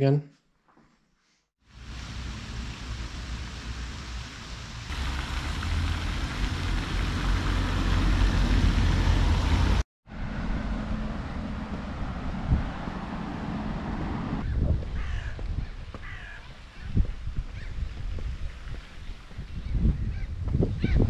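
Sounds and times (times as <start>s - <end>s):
street hush: 1.6s - 15.3s
fountain splashing into pond: 1.7s - 9.8s.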